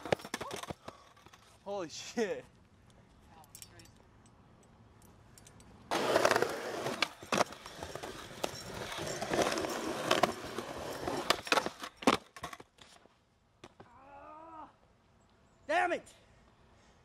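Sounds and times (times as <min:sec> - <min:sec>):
skateboard clacks: 0:00.0 - 0:01.2
skateboard wheels rumbling on concrete: 0:00.0 - 0:01.4, 0:05.9 - 0:13.0.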